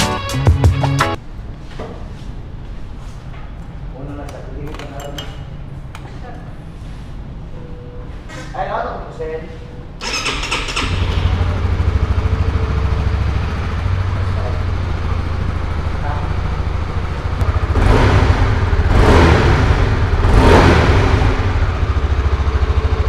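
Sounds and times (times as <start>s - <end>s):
motorcycle engine idling and revving: 10.0s - 23.0s
motorcycle engine starting: 10.0s - 23.0s.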